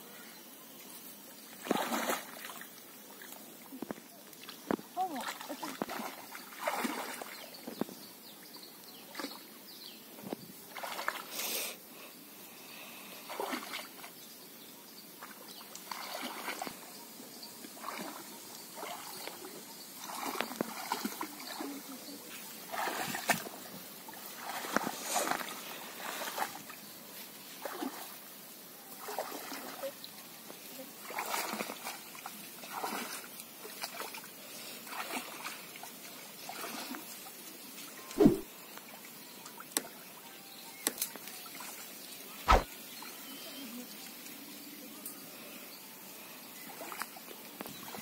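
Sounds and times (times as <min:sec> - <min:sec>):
water sloshing around wading legs: 0:01.6 - 0:03.8, 0:04.4 - 0:07.7, 0:10.7 - 0:11.3, 0:13.3 - 0:14.1, 0:15.2 - 0:16.8, 0:17.8 - 0:26.8, 0:27.5 - 0:28.2, 0:28.9 - 0:30.1, 0:30.8 - 0:37.5.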